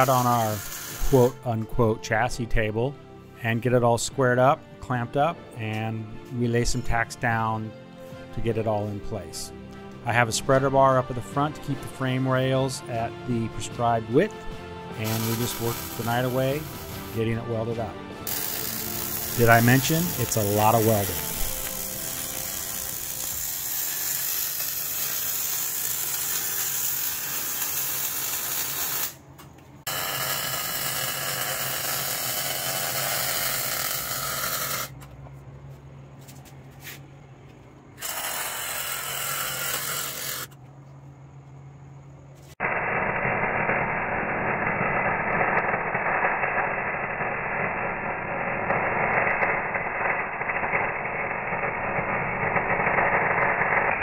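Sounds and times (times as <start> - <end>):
welding arc crackling: 0.0 - 1.4, 15.0 - 17.4, 18.3 - 29.2, 29.9 - 35.0, 38.0 - 40.5, 42.5 - 54.0.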